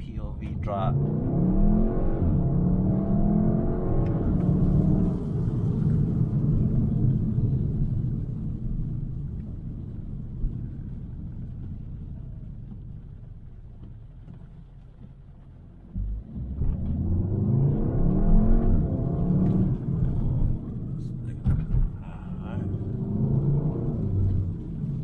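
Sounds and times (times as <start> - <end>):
car engine revving from inside cabin: 0.4 - 7.7, 16.0 - 25.0.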